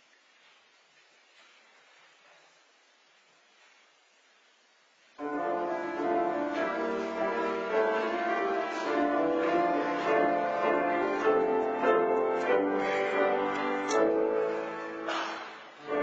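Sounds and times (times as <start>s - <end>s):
piano playing hymn chords: 5.2s - 16.0s.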